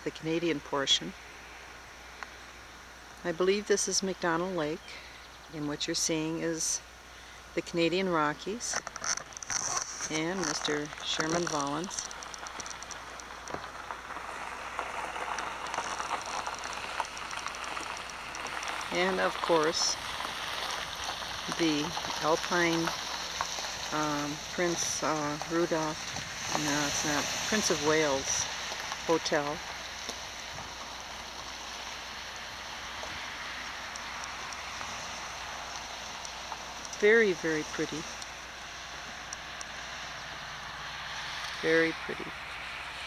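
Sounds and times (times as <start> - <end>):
crackles: 0.0 - 43.0
outdoor hiss: 0.0 - 43.0
faint ticks: 12.0 - 14.2.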